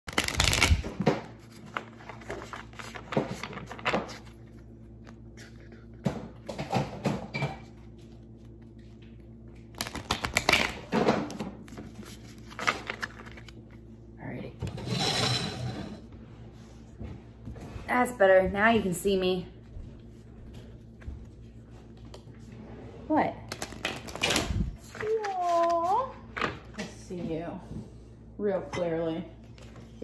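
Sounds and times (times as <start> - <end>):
cards riffle shuffling: 9.7 - 13.6
cards clicking and tapping: 9.8 - 11.8.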